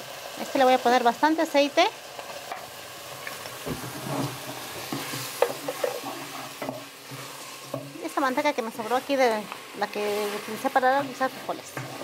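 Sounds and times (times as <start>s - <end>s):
steak sizzling in oil: 0.0s - 12.0s
spoon stirring and scraping: 3.2s - 8.0s, 10.0s - 12.0s.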